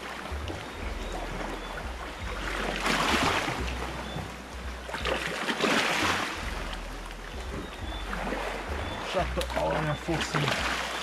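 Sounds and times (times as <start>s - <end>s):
waves washing over rocks: 5.0s - 6.9s, 8.2s - 11.0s.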